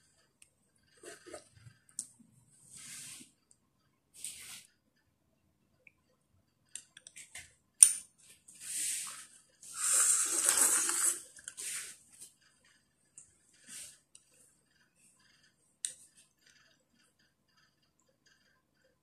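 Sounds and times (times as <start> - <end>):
noodles being slurped: 8.7 - 12.0.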